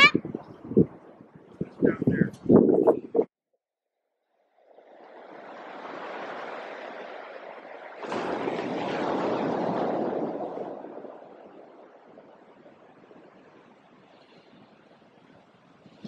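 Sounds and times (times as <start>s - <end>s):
ocean surf rushing on a beach: 4.8s - 16.0s.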